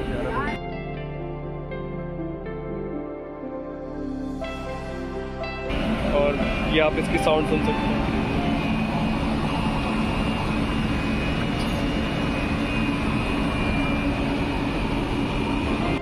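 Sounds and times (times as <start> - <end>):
electric train equipment humming: 0.0 - 0.6, 4.1 - 16.0.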